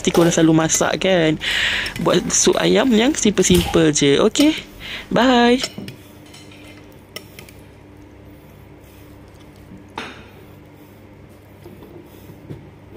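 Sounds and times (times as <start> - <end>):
low room hum: 0.0 - 12.9
spoon squishing food: 6.0 - 12.2.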